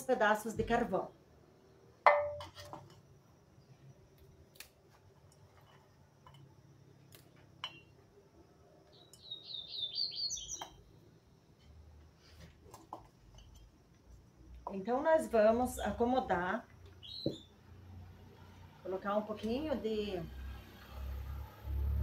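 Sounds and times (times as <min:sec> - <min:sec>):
light clicks and taps of pots: 0:05.2 - 0:06.5, 0:12.6 - 0:14.8
bird chirping: 0:08.8 - 0:11.0, 0:16.9 - 0:17.6.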